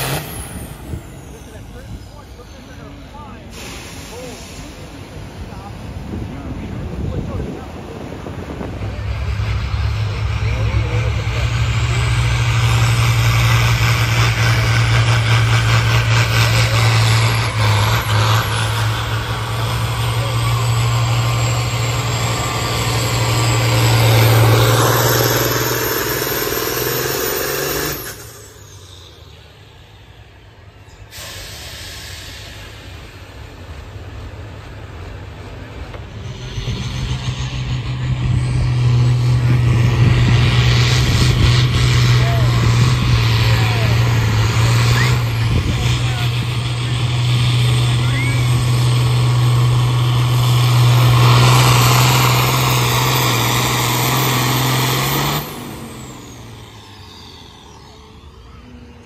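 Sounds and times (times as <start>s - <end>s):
diesel tractor engine under load: 0.0s - 59.0s.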